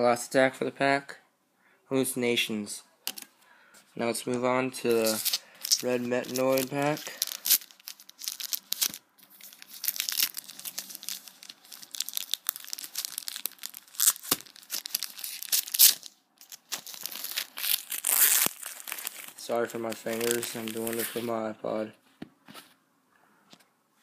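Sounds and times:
foil pack tearing and crinkling: 5.0 - 21.2.

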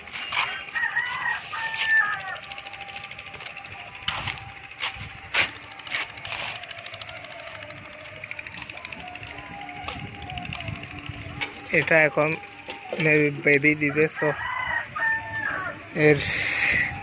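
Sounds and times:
rooster crowing: 0.3 - 2.6, 13.6 - 15.9.

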